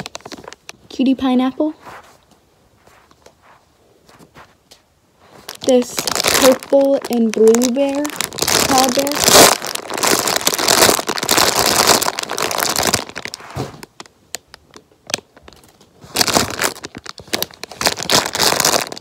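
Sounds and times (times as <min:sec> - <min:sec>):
plastic bag crinkling: 0:00.0 - 0:01.4, 0:05.2 - 0:19.0.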